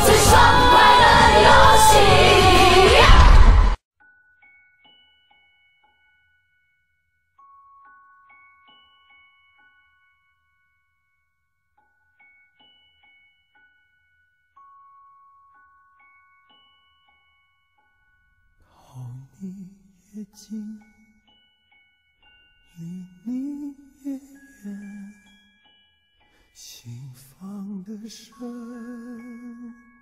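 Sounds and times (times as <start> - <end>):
slow soft song with vibrato voice: 0.0 - 3.8, 18.6 - 30.0
soft bell-like music: 4.0 - 30.0.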